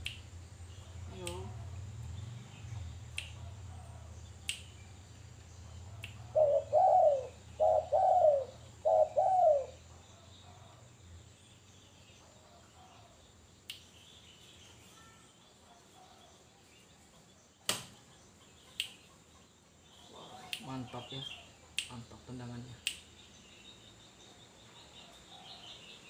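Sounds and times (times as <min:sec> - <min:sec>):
sharp clicks: 0:04.4 - 0:04.7, 0:22.8 - 0:23.1
dove cooing: 0:06.2 - 0:10.8.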